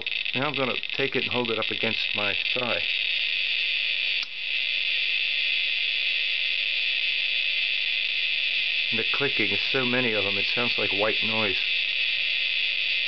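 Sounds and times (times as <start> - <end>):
geiger counter clicks merging into hiss: 0.0 - 4.6.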